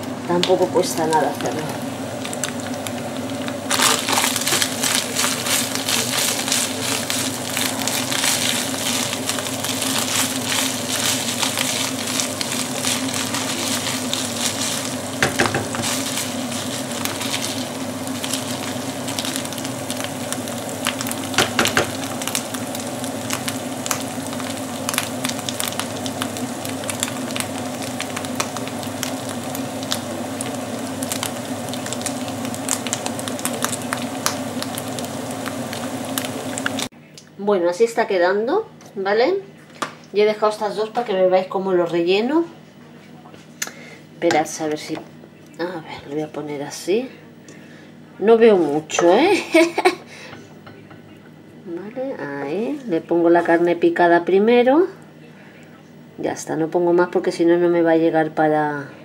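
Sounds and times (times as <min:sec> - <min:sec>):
steady low hum: 0:00.0 - 0:56.4
meat sizzling in a frying pan: 0:00.3 - 0:36.9.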